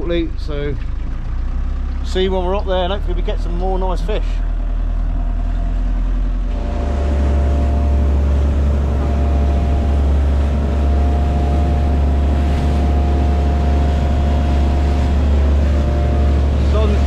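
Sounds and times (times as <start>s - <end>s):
motorboat engine droning: 0.0s - 17.0s.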